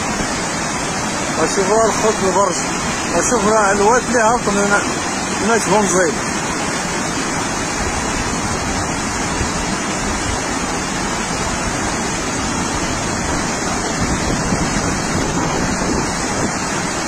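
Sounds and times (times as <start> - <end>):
floodwater rushing: 0.0 - 17.0.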